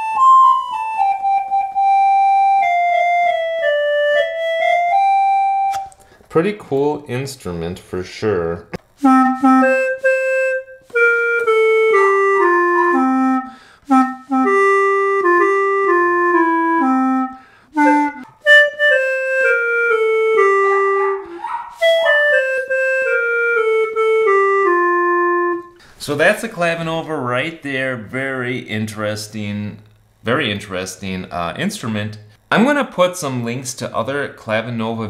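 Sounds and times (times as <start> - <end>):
wind keyboard melody: 0.0 - 6.0, 9.0 - 25.8.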